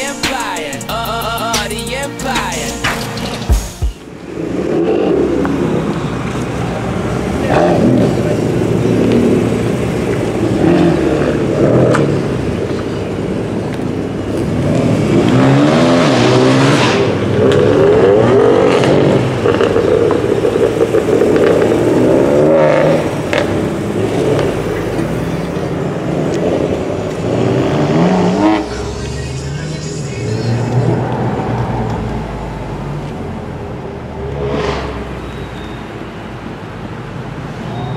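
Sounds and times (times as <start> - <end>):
car engines revving: 0.0 - 37.9.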